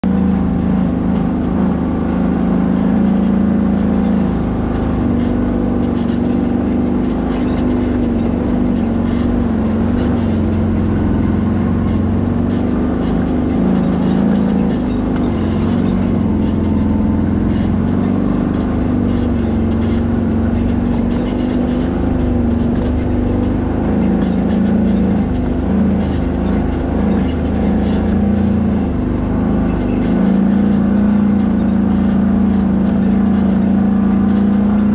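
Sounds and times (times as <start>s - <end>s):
atv engine running: 0.0s - 34.9s
clicks and rattles over bumps: 0.0s - 34.9s.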